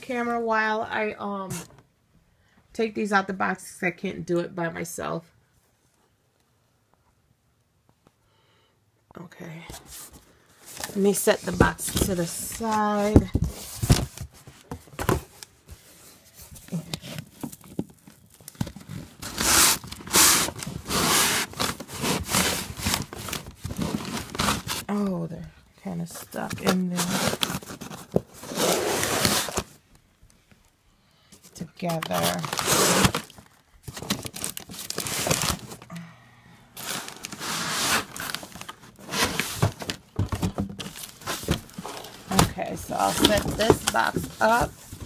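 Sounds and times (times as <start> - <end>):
cardboard packaging scraping: 9.9 - 24.9, 26.6 - 29.8, 31.9 - 35.8, 36.8 - 45.0
plastic wrapping crinkling: 31.8 - 35.9.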